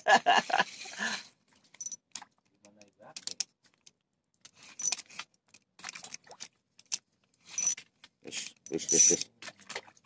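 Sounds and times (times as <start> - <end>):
fish splashing in water: 9.3 - 10.0.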